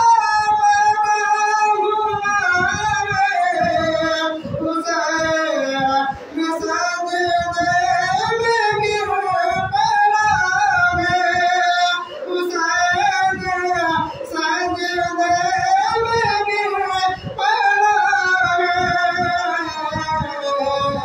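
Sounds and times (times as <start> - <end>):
man singing a devotional chant: 0.0 - 21.0.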